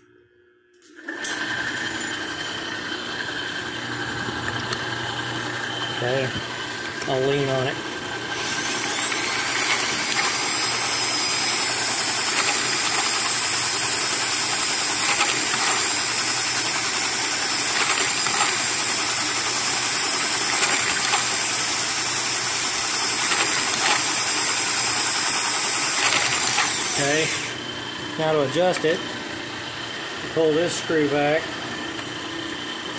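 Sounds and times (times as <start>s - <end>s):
grinding wheel whining: 1.1s - 29.1s
grinding hiss: 8.4s - 27.6s.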